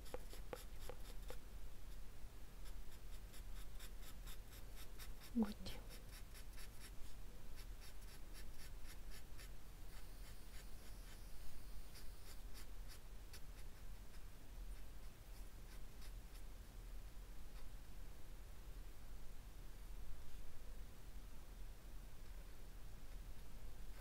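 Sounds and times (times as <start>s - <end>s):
felt-tip pen scratching paper: 0.0s - 1.4s, 2.6s - 5.4s, 6.0s - 7.0s, 7.6s - 14.2s.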